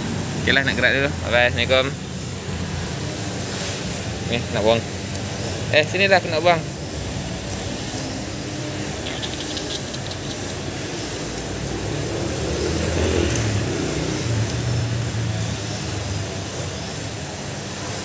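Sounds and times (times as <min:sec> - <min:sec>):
vehicle engine humming: 0:00.0 - 0:18.0.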